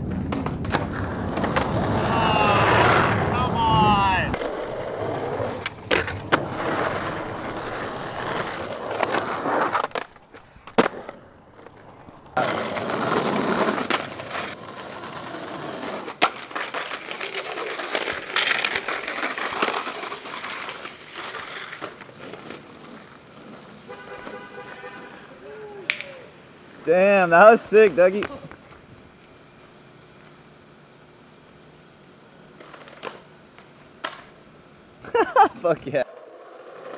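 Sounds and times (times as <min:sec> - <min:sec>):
skateboard clacking on ground: 0:00.0 - 0:26.3, 0:32.5 - 0:34.5
skateboard wheels rolling on concrete: 0:00.0 - 0:36.9.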